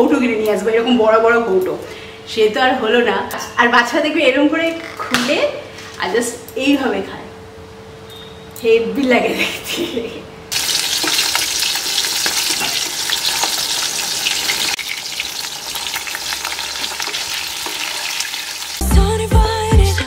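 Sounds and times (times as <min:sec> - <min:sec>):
fish sizzling in hot oil: 0:10.5 - 0:18.8
pop song with a beat: 0:18.8 - 0:20.0.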